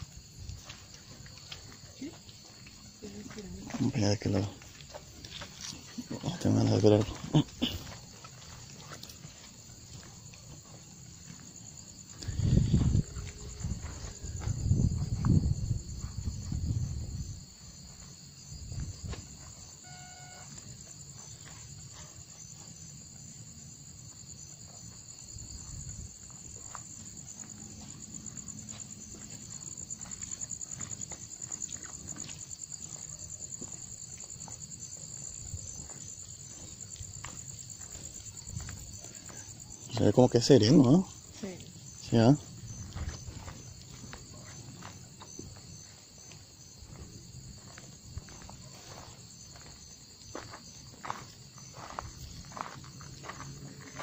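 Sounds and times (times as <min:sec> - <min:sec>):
crickets chirping: 0:00.0 - 0:54.0
short tone: 0:19.8 - 0:20.6.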